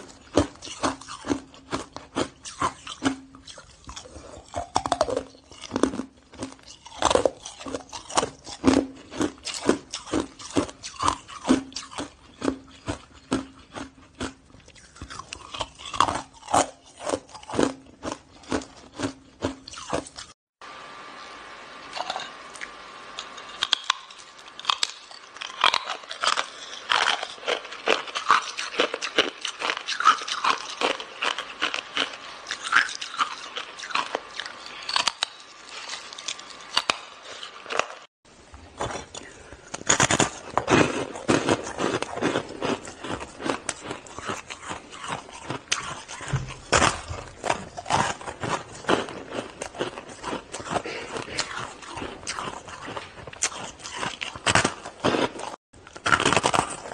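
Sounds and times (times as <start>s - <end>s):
ice crunching being chewed: 0.0s - 20.4s, 21.9s - 38.1s, 38.7s - 56.9s
faint steady hum: 0.0s - 56.9s.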